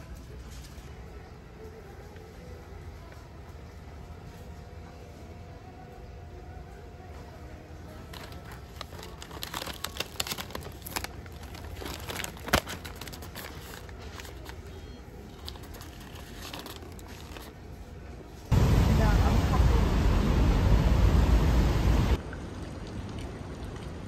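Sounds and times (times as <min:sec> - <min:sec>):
crinkling handling noise: 0:07.9 - 0:18.5.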